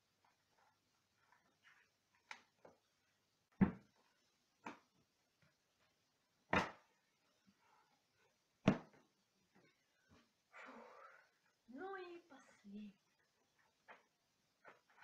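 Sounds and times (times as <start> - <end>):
books thumping on table: 3.6 - 4.0, 6.5 - 6.9, 8.6 - 9.0.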